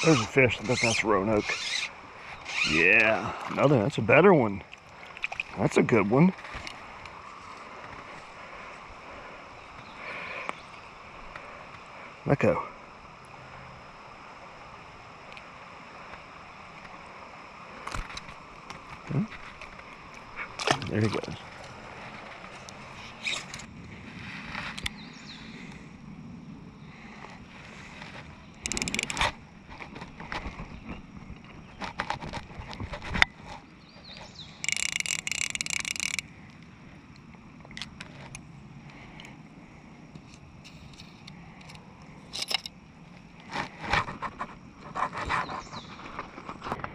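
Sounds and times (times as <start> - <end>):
fly reel clicker ratcheting: 0.0 - 3.1, 28.6 - 29.4, 34.4 - 36.3, 40.2 - 42.8
river water hissing: 0.0 - 29.7
clicks from handling fish: 28.0 - 30.5.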